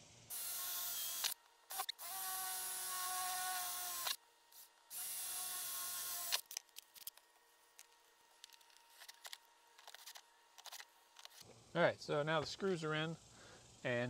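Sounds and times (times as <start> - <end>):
power drill running: 0.3 - 6.5.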